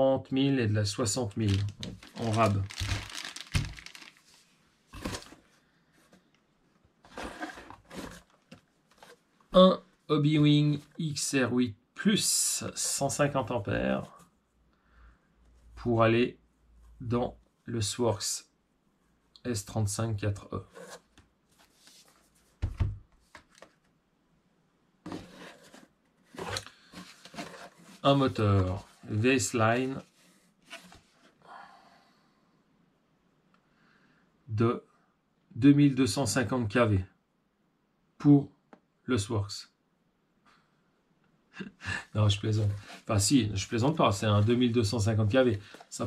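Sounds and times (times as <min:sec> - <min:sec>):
packaging rustling: 0:01.4 - 0:05.5, 0:07.1 - 0:09.2, 0:25.1 - 0:29.0
parts being handled: 0:01.5 - 0:06.2.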